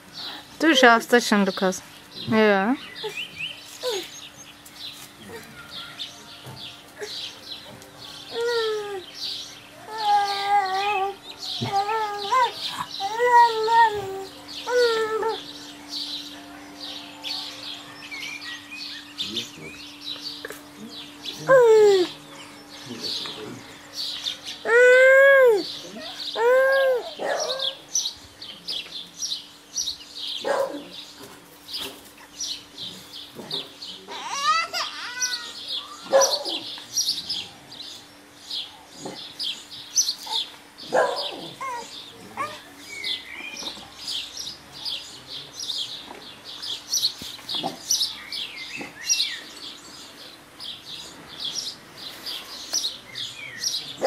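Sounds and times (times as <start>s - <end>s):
small birds chirping: 0.0s - 54.0s
baby squealing and babbling: 9.9s - 15.4s, 24.6s - 27.2s, 34.1s - 36.1s, 41.6s - 42.6s.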